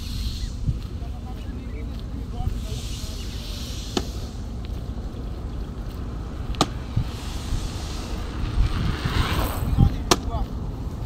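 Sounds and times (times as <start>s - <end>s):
road traffic rumble: 0.0s - 11.0s
sharp cracks: 6.4s - 10.4s.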